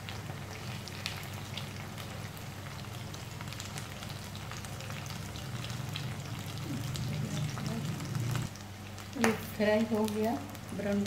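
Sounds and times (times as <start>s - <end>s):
oil sizzling and crackling: 0.0s - 11.0s
steady low hum: 2.3s - 10.8s.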